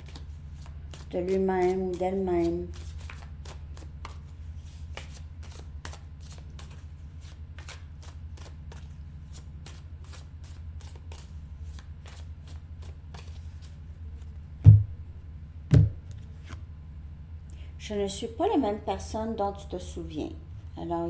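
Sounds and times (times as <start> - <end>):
cards shuffling and clicking: 0.0 - 14.8
steady low hum: 0.0 - 21.0
loud thump: 14.6 - 15.0, 15.7 - 16.0.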